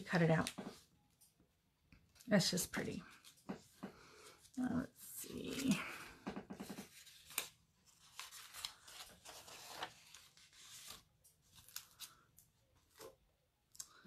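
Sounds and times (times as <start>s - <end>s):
paper rustling: 6.6s - 13.2s.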